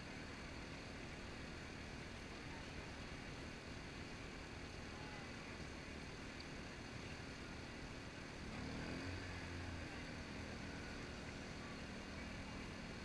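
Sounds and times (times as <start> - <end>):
low engine drone: 0.0 - 13.0
low outdoor rumble: 0.0 - 13.0.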